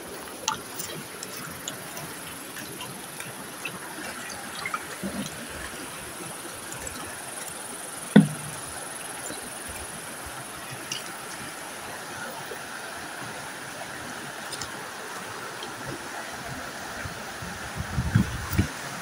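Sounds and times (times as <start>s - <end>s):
flowing water rushing: 0.0s - 19.0s
small knocks: 8.1s - 8.8s
loud thump: 8.2s - 8.6s.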